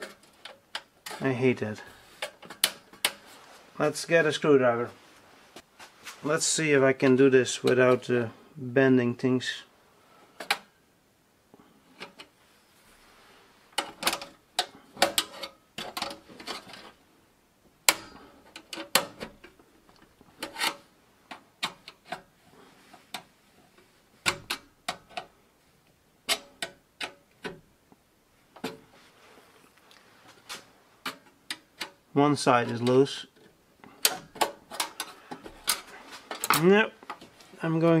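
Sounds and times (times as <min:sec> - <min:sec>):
screwdriver clicking and scraping metal: 0:20.4 - 0:22.3.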